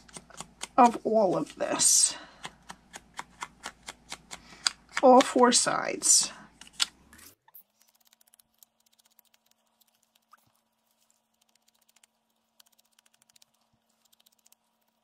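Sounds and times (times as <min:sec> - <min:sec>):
sponge scratching on cardstock: 0:07.2 - 0:15.0.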